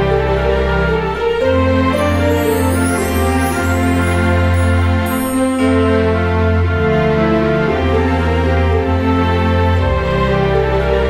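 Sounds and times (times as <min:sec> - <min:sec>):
sustained chords: 0:01.9 - 0:08.5.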